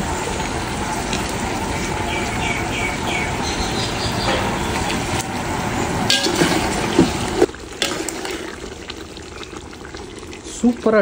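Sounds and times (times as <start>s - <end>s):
water pouring into a metal pot: 6.0s - 11.0s.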